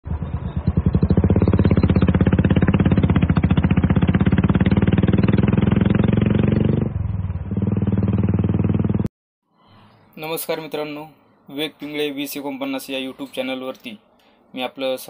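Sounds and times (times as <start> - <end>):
motorcycle engine running: 0.1 - 9.1.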